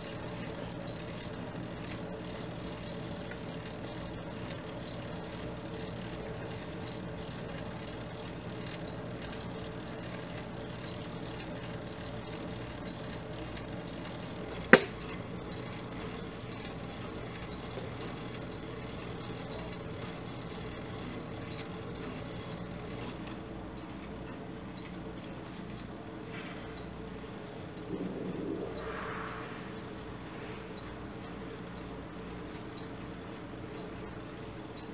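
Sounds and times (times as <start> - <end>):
clock mechanism whirring: 0.0 - 34.9
sharp click: 14.7 - 15.2.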